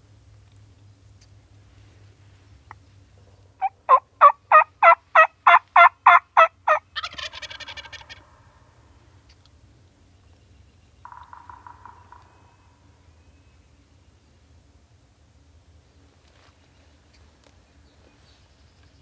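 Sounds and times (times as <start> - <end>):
turkey call notes: 3.6 - 8.4, 11.0 - 12.9
wild turkey gobbling: 3.6 - 8.4, 11.0 - 12.5.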